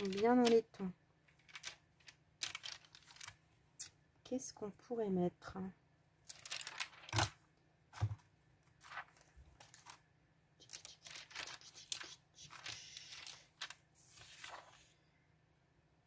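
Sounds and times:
paper rustling and crinkling: 0:00.0 - 0:03.4, 0:06.2 - 0:15.0.

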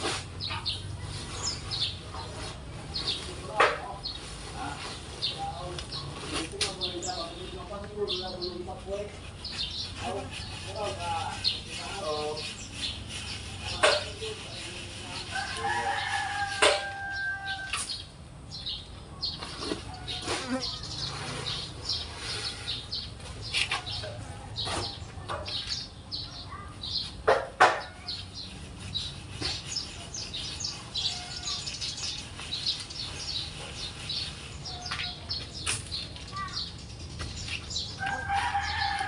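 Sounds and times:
sand rustling across wire mesh: 0:00.0 - 0:18.0, 0:18.6 - 0:27.2, 0:27.9 - 0:39.0
rooster crowing: 0:15.3 - 0:17.8, 0:38.0 - 0:39.0.

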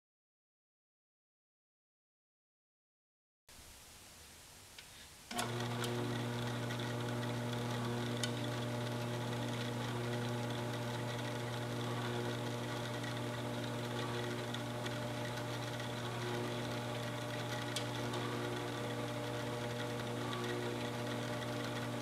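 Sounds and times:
electric motor humming: 0:05.3 - 0:22.0.

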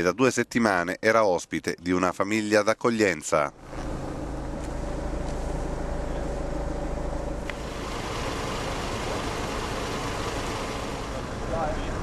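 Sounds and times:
vehicle engines idling: 0:03.5 - 0:12.0.

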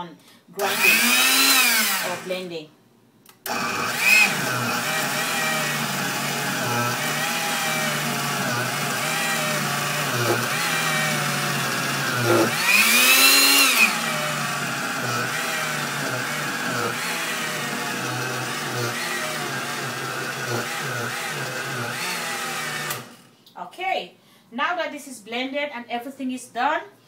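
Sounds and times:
blender motor running: 0:00.6 - 0:02.3, 0:03.5 - 0:23.3.

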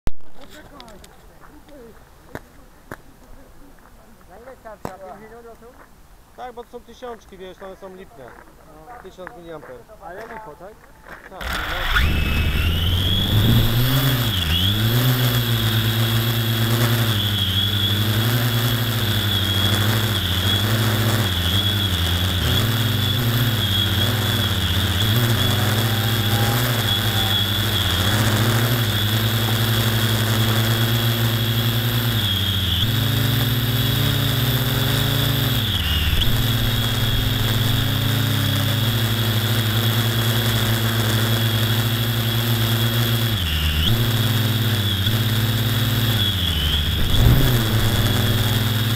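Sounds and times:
model aircraft motor whine: 0:11.4 - 0:48.9.

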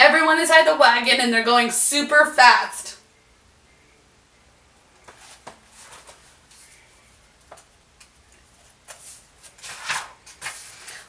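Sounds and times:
book pages rustling: 0:05.0 - 0:11.0.

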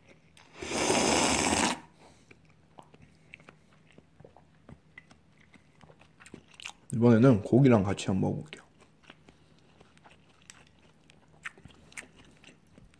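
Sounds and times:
faint chewing: 0:00.0 - 0:00.6, 0:01.5 - 0:07.1, 0:08.3 - 0:12.9
loud slurp of noodles: 0:00.4 - 0:02.0.

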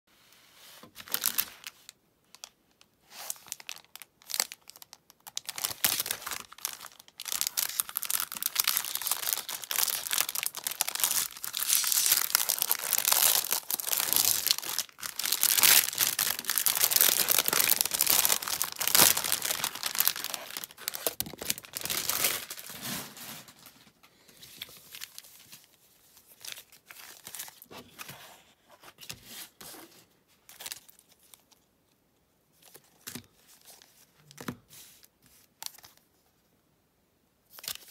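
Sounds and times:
plastic wrapper crinkling and tearing: 0:01.0 - 0:23.7, 0:24.5 - 0:27.7
packaging rustling: 0:03.3 - 0:25.7.

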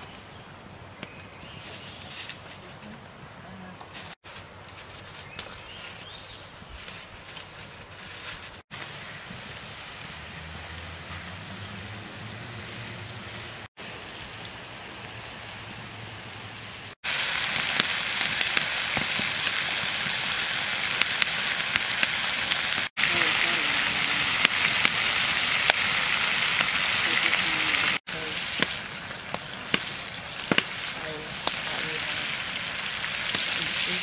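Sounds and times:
steaks sizzling in a skillet: 0:17.0 - 0:34.0
sharp pops and crackles: 0:17.1 - 0:23.6, 0:24.3 - 0:34.0.

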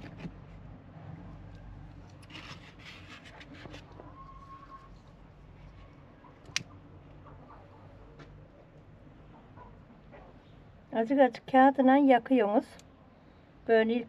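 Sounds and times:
paper rustling and crackling: 0:02.2 - 0:04.0.

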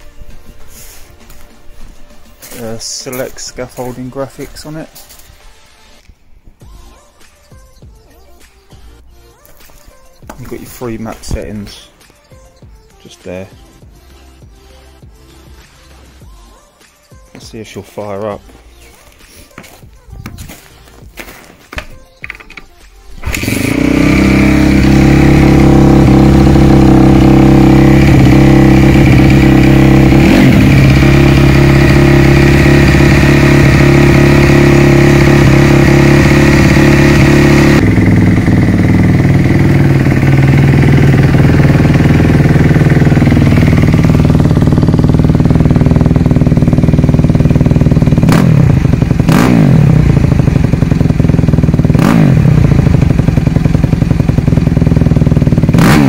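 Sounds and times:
motorcycle engine idling: 0:23.1 - 0:56.0
motorcycle engine revving: 0:23.2 - 0:56.0.

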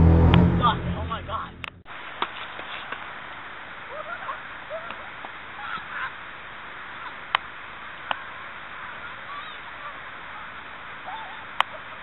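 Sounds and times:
outdoor air hiss: 0:01.3 - 0:12.0
geese honking: 0:09.0 - 0:10.5.

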